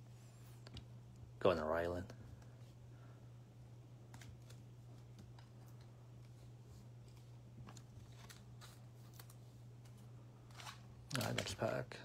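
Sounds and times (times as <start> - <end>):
steady low hum: 0.0 - 12.0
trading cards rustling and clicking: 7.0 - 11.8.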